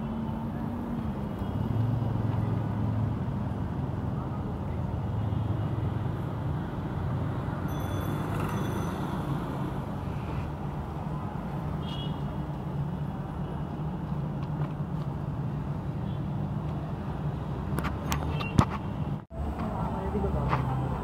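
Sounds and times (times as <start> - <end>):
street traffic rumble: 0.0 - 21.0.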